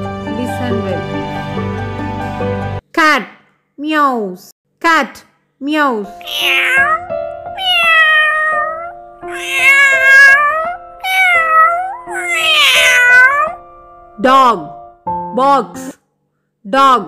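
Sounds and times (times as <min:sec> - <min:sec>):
background music: 0:00.0 - 0:02.8, 0:05.7 - 0:16.0
cat meowing: 0:06.2 - 0:13.6.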